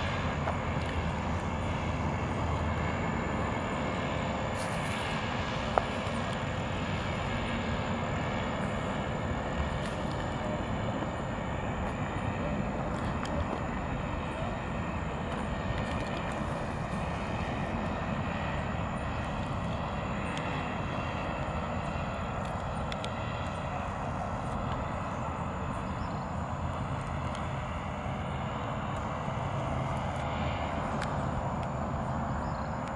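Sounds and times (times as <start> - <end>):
distant paramotor engine droning: 0.0 - 32.9.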